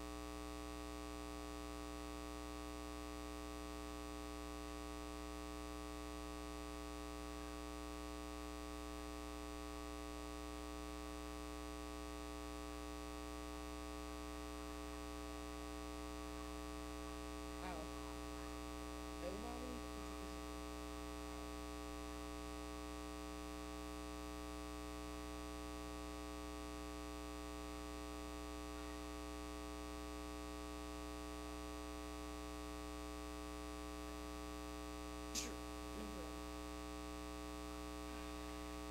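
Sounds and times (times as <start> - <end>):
electrical mains hum: 0.0 - 38.9
faint voice speaking: 17.6 - 18.6, 19.2 - 20.3, 35.4 - 36.4.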